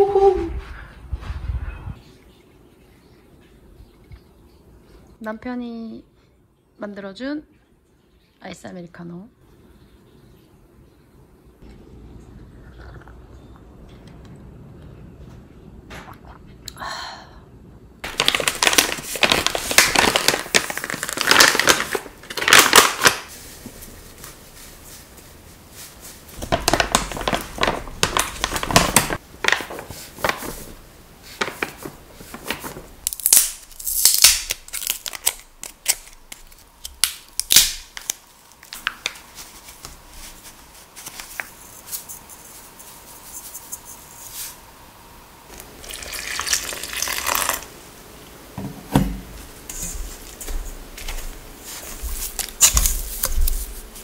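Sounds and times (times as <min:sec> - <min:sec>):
flour bags rustling and crinkling: 0:18.0 - 0:44.6, 0:49.3 - 0:54.0
water pouring into bowl: 0:45.6 - 0:47.7.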